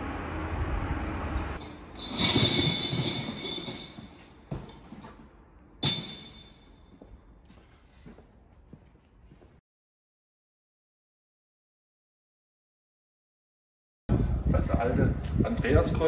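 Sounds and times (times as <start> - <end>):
loud metallic clangs: 1.6 - 4.2, 5.8 - 6.8.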